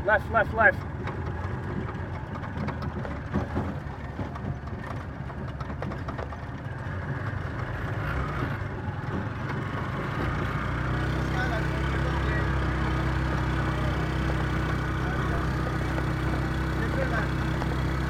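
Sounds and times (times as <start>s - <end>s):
vehicle engine running: 0.0s - 18.0s
metal body rattling: 0.7s - 7.7s, 11.5s - 18.0s.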